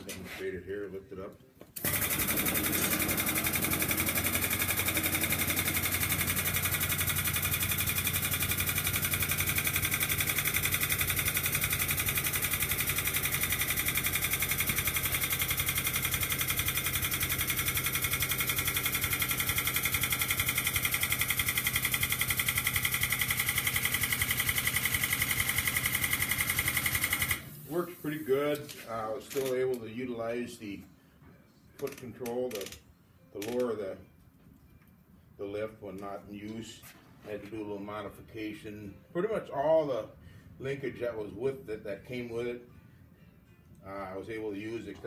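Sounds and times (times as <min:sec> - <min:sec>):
air pump chattering: 0:01.8 - 0:27.6.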